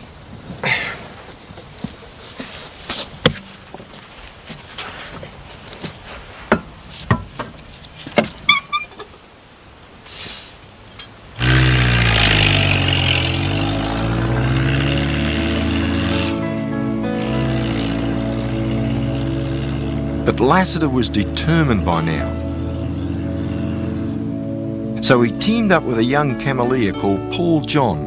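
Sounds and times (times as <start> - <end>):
short hiss of air: 10.0 - 10.7
truck engine driving off: 11.4 - 28.0.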